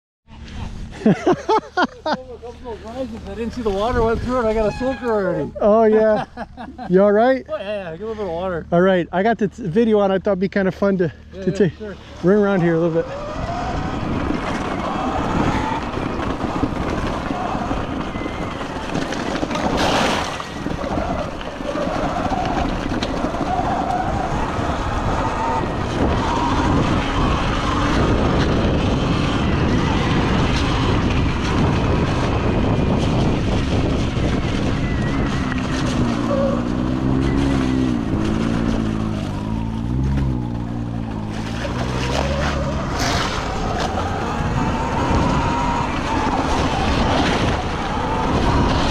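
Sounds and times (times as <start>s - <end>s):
wind rush on microphone: 2.7s - 6.6s, 12.0s - 48.9s
tyre noise on gravel: 13.0s - 48.9s.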